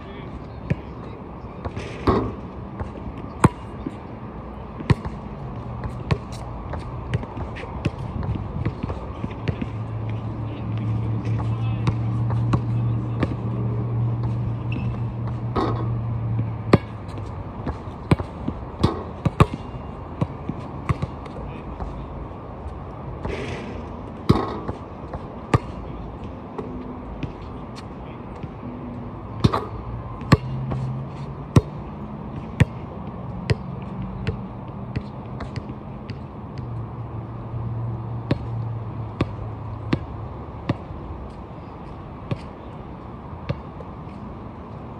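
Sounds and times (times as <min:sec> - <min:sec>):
basketball bouncing on hard court: 0:05.8 - 0:09.8, 0:16.7 - 0:21.2, 0:23.2 - 0:25.8.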